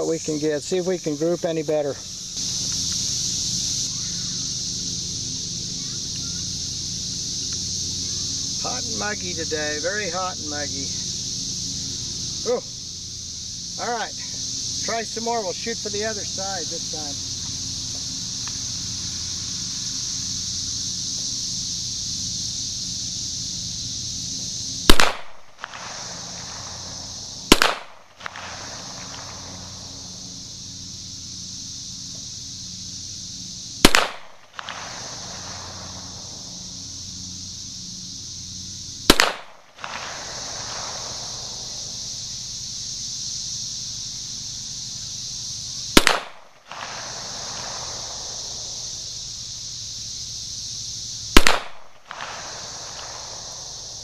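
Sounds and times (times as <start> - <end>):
pistol shots with echo: 27.5 - 27.9, 39.1 - 39.5.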